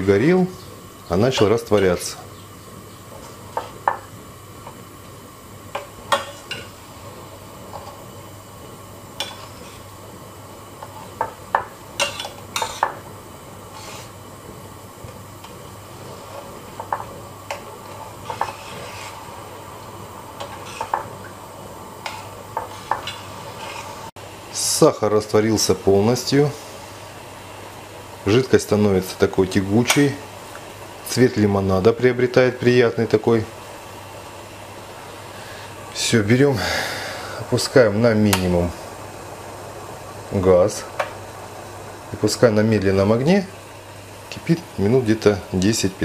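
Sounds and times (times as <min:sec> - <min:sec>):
low hiss: 0:00.0 - 0:46.0
metal spoon scraping a pot: 0:12.0 - 0:12.9, 0:17.5 - 0:19.3, 0:20.4 - 0:21.1, 0:22.0 - 0:24.0.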